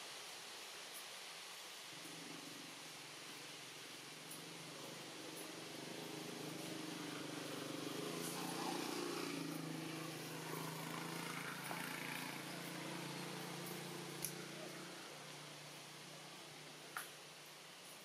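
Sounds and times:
vehicle engine running: 4.1s - 16.8s.

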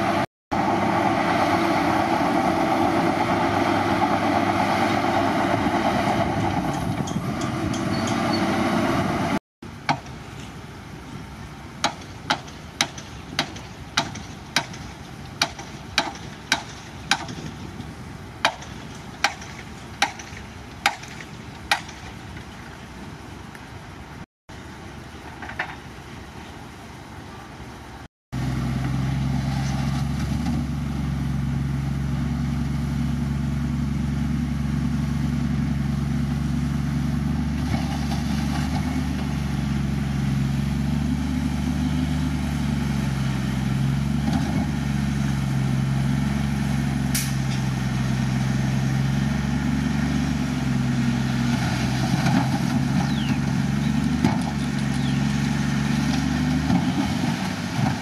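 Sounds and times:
heavy diesel engine running: 0.0s - 9.8s, 28.4s - 58.0s.

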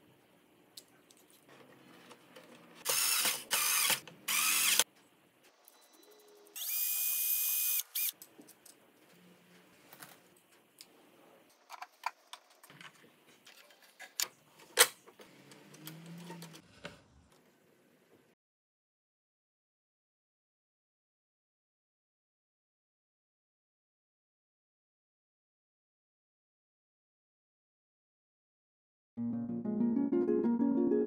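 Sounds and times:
small electric motor whine: 2.9s - 4.8s, 5.8s - 8.2s.

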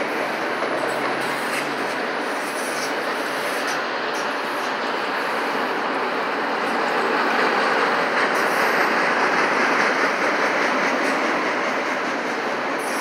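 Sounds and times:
train wheels on rails: 0.0s - 13.0s
wheels clickety-clack on rail joints: 0.0s - 13.0s.

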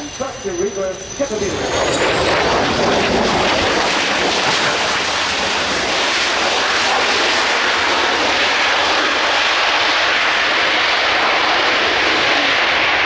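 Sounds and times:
loud jet roar: 0.0s - 13.0s.

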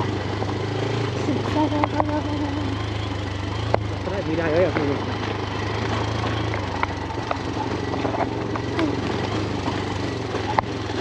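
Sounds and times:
motorbike engine running: 0.0s - 11.0s
small clicks and rattles: 4.8s - 11.0s.

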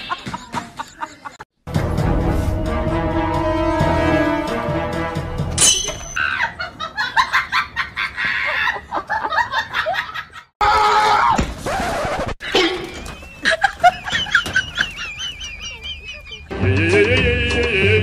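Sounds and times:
person laughing: 12.4s - 16.5s.

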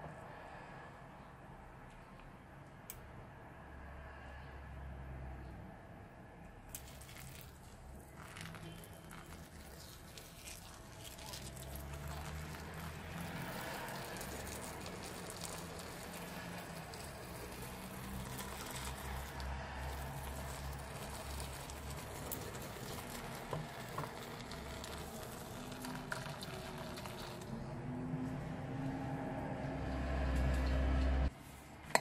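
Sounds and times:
foam fizzing: 6.7s - 27.5s
liquid pouring onto foam: 6.7s - 27.5s.

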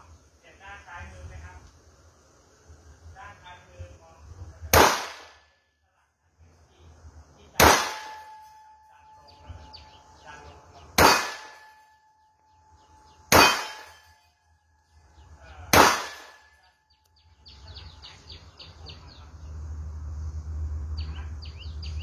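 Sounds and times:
pistol gunshots: 4.7s - 5.5s, 7.6s - 8.5s, 11.0s - 11.8s, 13.3s - 14.1s, 15.7s - 16.6s
birds chirping: 6.7s - 22.0s
faint ringing tone: 11.6s - 13.3s.

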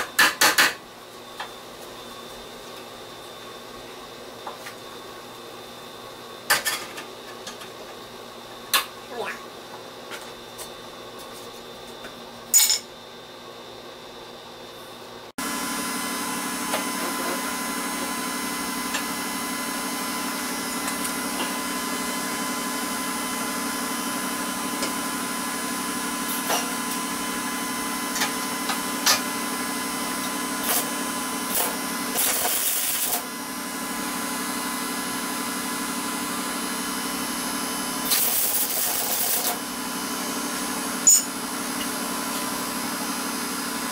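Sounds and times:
arc welding crackling: 31.5s - 33.2s, 38.1s - 39.6s.

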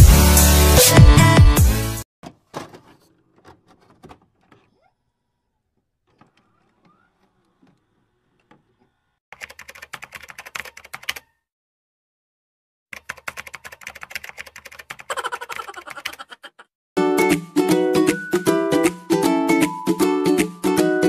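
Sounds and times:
rapid keyboard key clicks: 9.4s - 11.3s, 13.0s - 16.3s.

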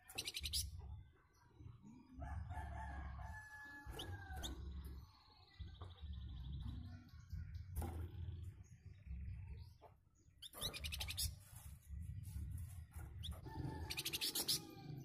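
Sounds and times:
songbird calling and trilling: 0.0s - 0.9s, 8.5s - 11.4s, 13.2s - 15.0s.

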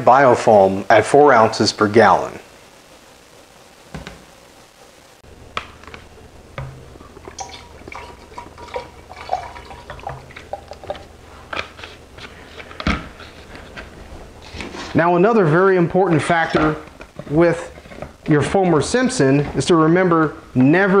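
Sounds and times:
liquid pouring into plastic tank: 6.6s - 11.1s.

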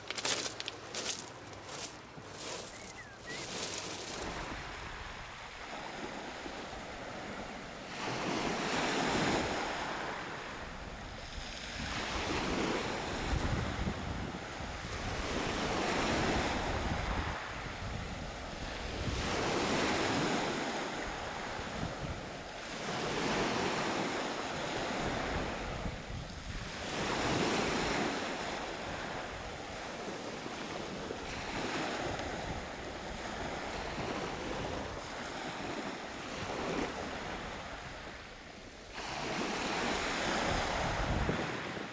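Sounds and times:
waves washing up a pebble beach: 0.0s - 7.3s, 11.2s - 37.8s
wind buffeting the microphone: 10.8s - 29.9s, 30.9s - 38.2s, 39.0s - 41.9s.

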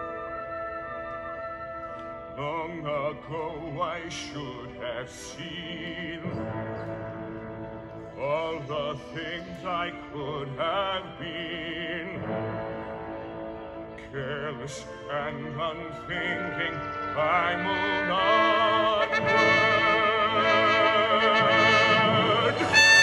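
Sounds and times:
orchestral backing track: 0.0s - 23.0s
trumpet solo with vibrato: 15.9s - 23.0s.

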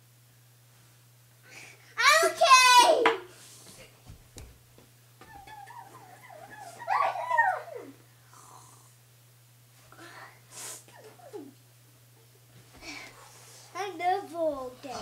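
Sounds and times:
steady low hum: 0.0s - 15.0s
child yelping: 2.0s - 3.1s, 5.2s - 8.0s.

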